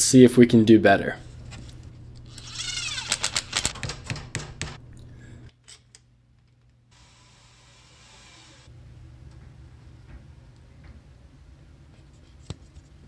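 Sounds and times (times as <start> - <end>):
screw squeaking in plastic: 2.2 - 4.2.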